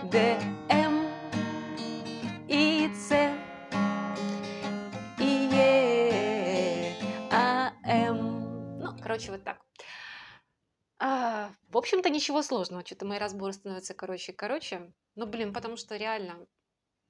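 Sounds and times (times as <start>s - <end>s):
woman singing: 0.0s - 3.6s, 4.6s - 9.5s
acoustic guitar strumming: 0.0s - 9.2s.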